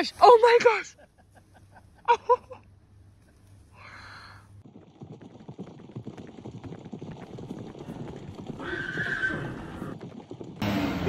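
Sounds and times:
hooves galloping on grass: 4.6s - 11.0s
horse neighing: 8.5s - 10.0s.

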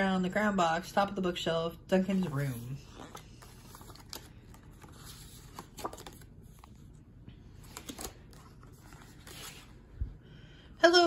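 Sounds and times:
paper rustling and sliding: 2.1s - 7.0s, 7.6s - 9.9s
paper handling ticks: 3.0s - 6.8s, 7.6s - 9.6s.

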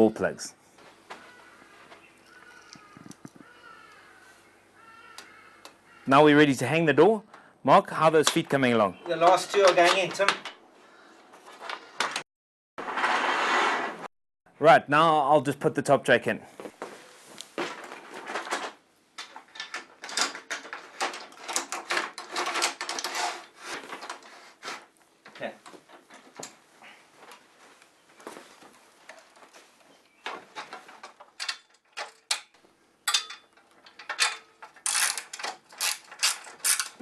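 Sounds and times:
metal security gate rattling: 30.5s - 37.0s.

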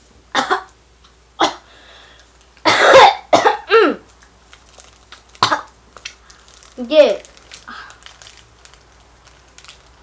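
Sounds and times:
boy coughing: 0.4s - 0.7s, 2.7s - 4.0s.

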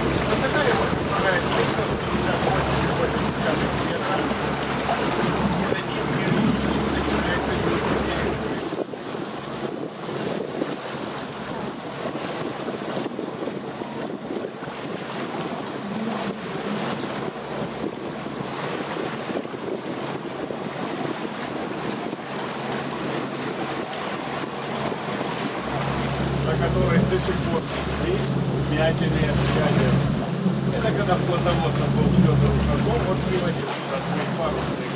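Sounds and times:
water splashing along boat hull: 0.0s - 34.9s
wind buffeting microphone: 0.0s - 34.9s
low rumble: 25.4s - 33.6s.

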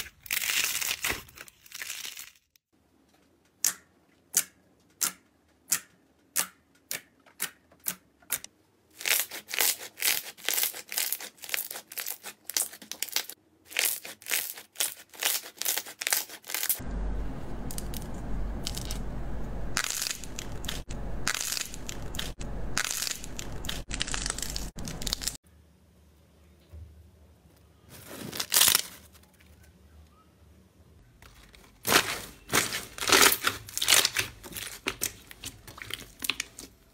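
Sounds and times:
slime crackling: 9.0s - 16.8s, 19.8s - 25.4s, 31.3s - 36.8s
low rumble and hiss: 16.8s - 28.1s
slime squishing: 31.2s - 36.9s.

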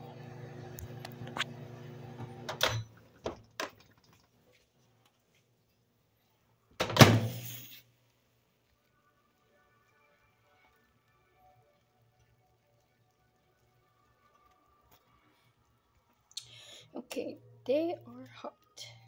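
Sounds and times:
microwave oven humming: 0.0s - 3.0s.

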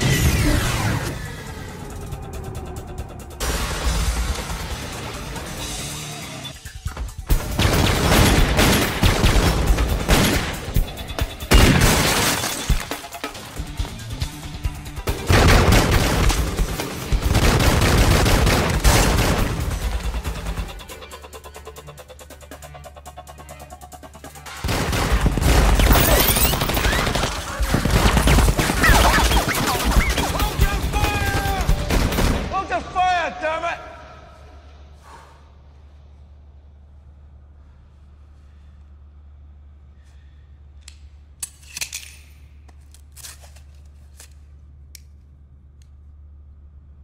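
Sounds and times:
heavy gunfire: 15.2s - 20.0s
steady low hum: 34.2s - 47.0s.

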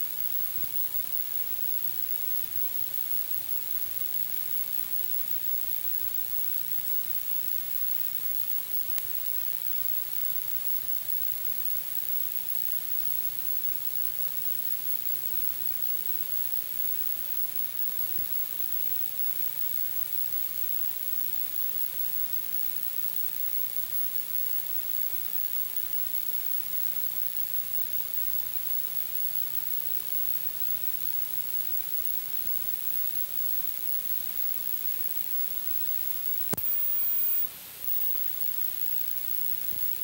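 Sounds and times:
videotape hiss: 0.0s - 40.0s
tiny click: 36.5s - 37.5s.

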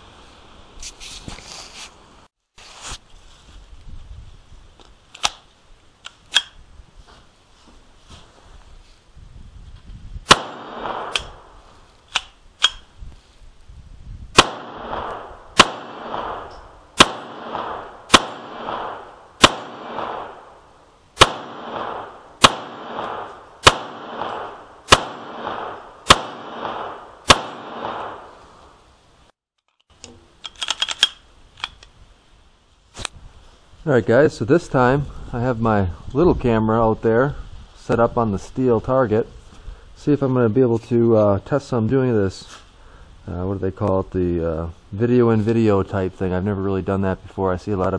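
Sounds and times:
pistol shots: 10.3s - 11.5s, 14.4s - 20.6s, 21.2s - 28.4s
small clicks: 29.6s - 31.9s.

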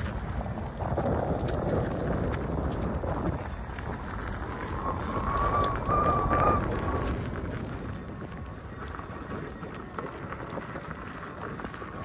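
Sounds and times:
tyre rolling on gravel: 0.0s - 12.0s
wind on microphone: 0.0s - 12.0s
steady high whine: 3.8s - 12.0s.

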